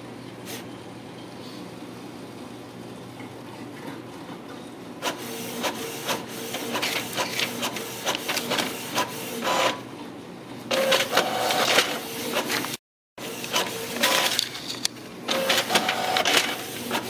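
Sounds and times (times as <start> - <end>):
printer paper feed clicks: 5.0 - 9.8, 10.7 - 17.0
printer print head whirring: 5.0 - 10.0, 10.7 - 17.0.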